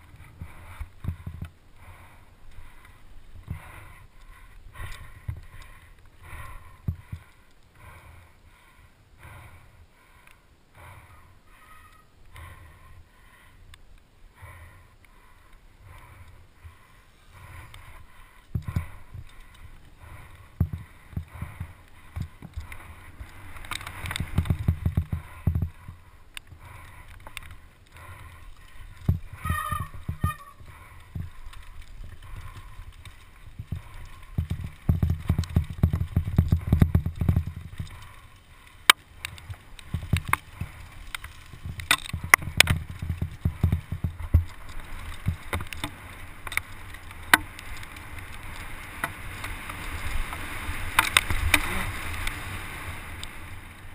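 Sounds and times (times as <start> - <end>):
bike frame rattling: 17.9 - 52.5.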